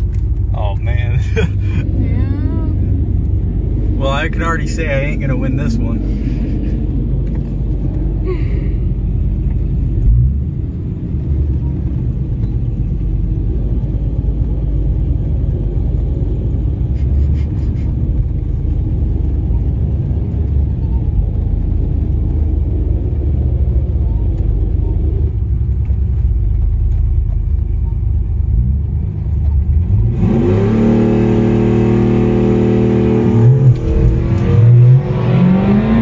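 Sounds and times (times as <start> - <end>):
car engine idling: 0.0 - 29.9.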